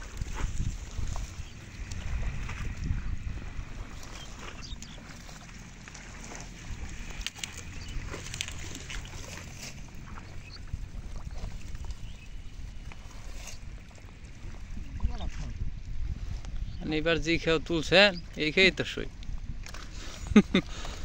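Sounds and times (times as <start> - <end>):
water sloshing: 0.0 - 21.0
wind rumble on microphone: 0.0 - 21.0
plant leaves rustling and crackling: 4.0 - 10.6.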